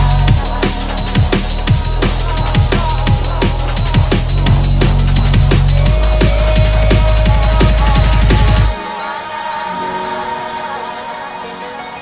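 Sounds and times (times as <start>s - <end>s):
deep sustained bass: 0.0s - 8.7s
fast electronic drum beat: 0.0s - 9.0s.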